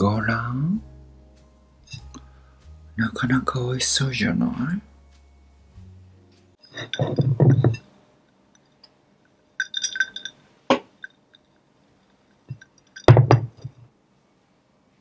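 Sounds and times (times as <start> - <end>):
metal straw clinking glass jar: 6.6 - 7.8, 9.6 - 11.6, 12.3 - 13.4.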